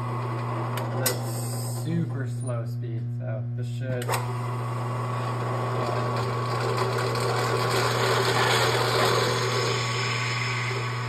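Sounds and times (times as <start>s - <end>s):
drill press motor hum: 0.0s - 2.6s, 3.8s - 11.0s
drill bit cutting steel hiss: 7.8s - 11.0s.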